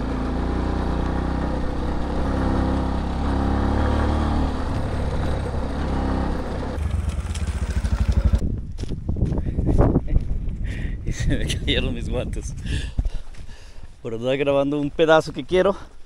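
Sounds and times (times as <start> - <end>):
motorcycle engine running: 0.0 - 9.4
wind and road noise: 0.0 - 16.0.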